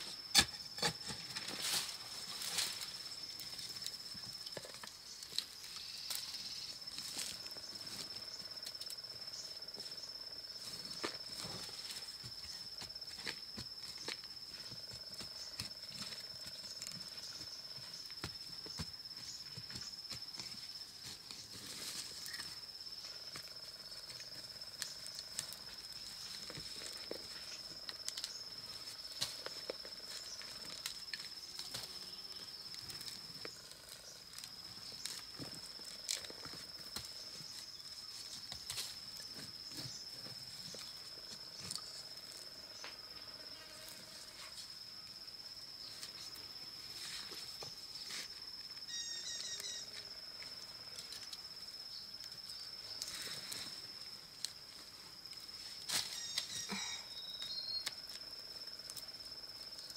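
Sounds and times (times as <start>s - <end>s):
high-pitched insect drone: 0.0s - 59.9s.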